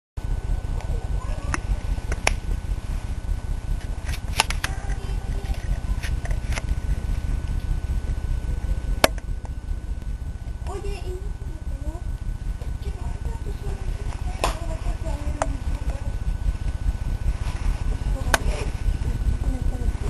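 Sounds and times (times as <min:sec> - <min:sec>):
low rumbling noise: 0:00.2 - 0:20.0
sharp clicks: 0:01.5 - 0:02.4, 0:09.0 - 0:10.6.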